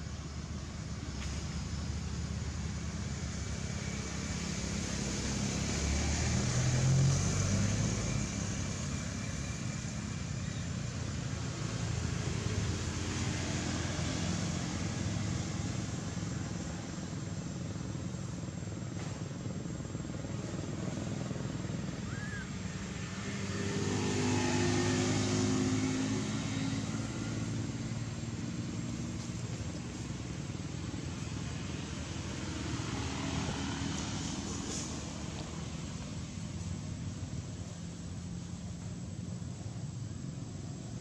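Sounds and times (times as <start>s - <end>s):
traffic rumble: 0.0s - 41.0s
vehicle passing: 2.0s - 10.4s, 20.2s - 41.0s.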